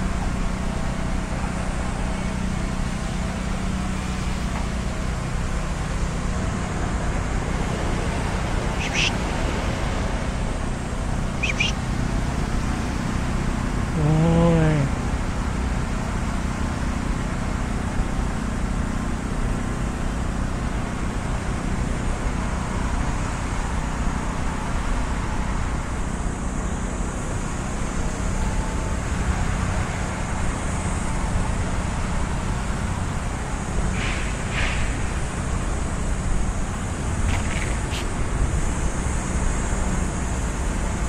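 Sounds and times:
road traffic hum: 0.0s - 41.0s
short high sounds: 8.8s - 9.2s, 11.4s - 11.8s.

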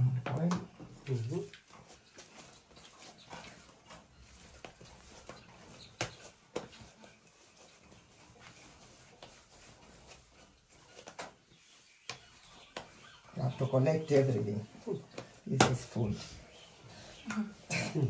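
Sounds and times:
hands kneading dough: 0.0s - 18.0s
sharp pats on dough: 4.6s - 6.8s, 15.1s - 16.0s.

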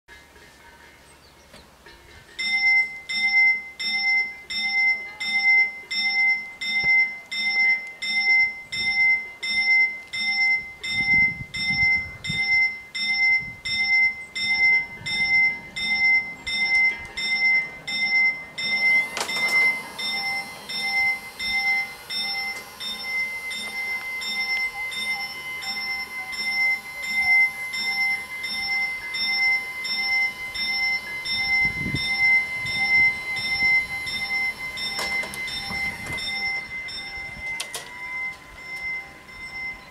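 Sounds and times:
level crossing bells ringing: 0.1s - 39.9s
barrier arms lowering: 15.1s - 39.9s.

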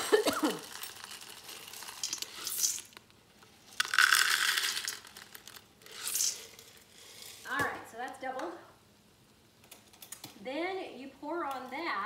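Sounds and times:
dry pasta rattling into pot: 0.0s - 3.0s, 3.7s - 7.4s.

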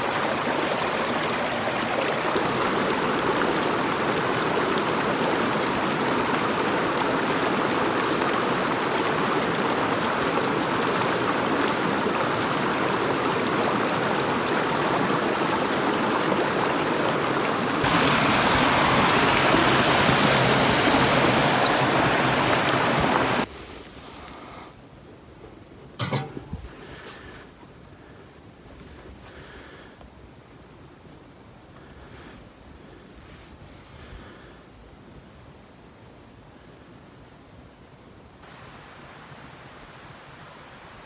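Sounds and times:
stream flowing over rocks: 0.0s - 23.5s, 38.4s - 41.0s.

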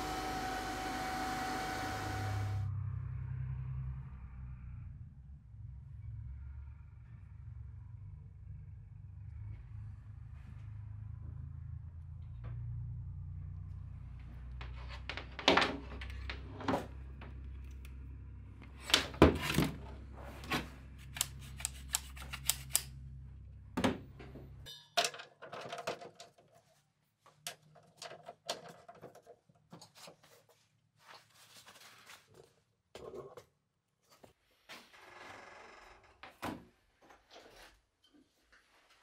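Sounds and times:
low steady rumble: 2.3s - 15.2s.

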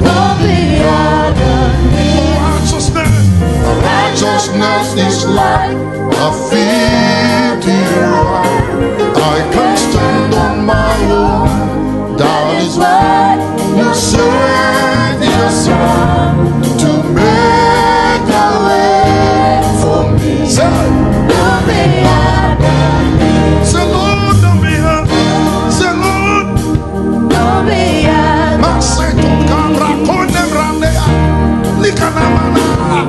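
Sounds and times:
backing choir singing: 0.0s - 33.0s
keyboard: 0.0s - 33.0s
man singing lead vocals: 2.0s - 13.0s, 16.7s - 17.5s, 23.5s - 26.6s, 28.5s - 33.0s.

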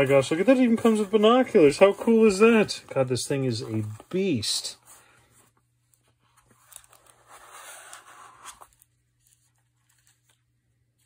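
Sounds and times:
foam rustling and scraping: 0.0s - 4.8s.

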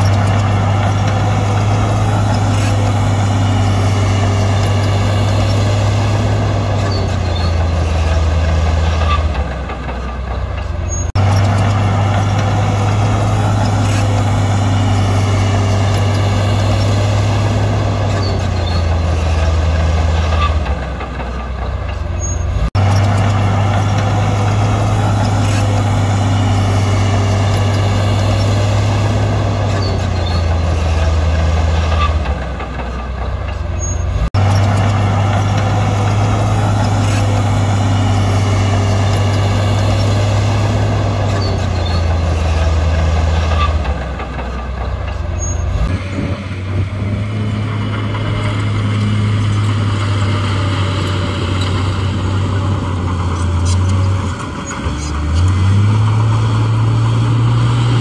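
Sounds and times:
heavy diesel engine under load: 0.0s - 58.0s.

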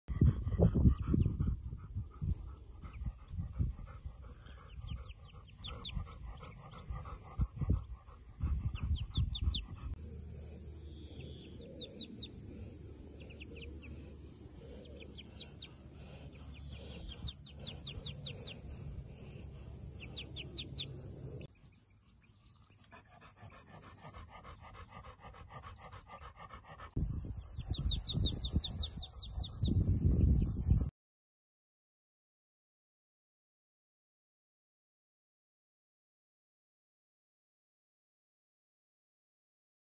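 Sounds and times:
dog panting: 0.1s - 21.5s, 22.7s - 29.8s
ducklings peeping: 2.4s - 30.9s.

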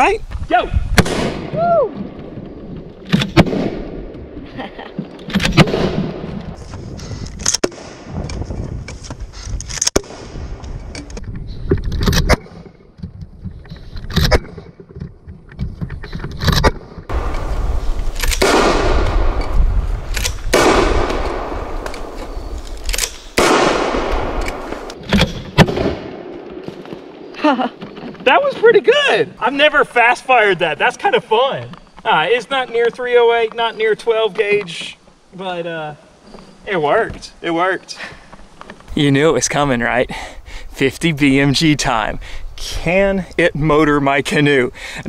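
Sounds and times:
can cannon shots: 1.0s - 1.6s, 5.3s - 6.3s, 18.1s - 26.3s
rushing noise: 17.1s - 25.0s.

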